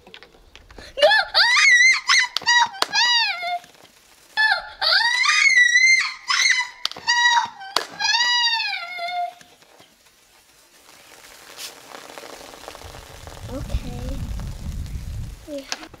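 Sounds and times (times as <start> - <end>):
girl screaming and squealing: 0.9 - 3.6, 4.4 - 9.4.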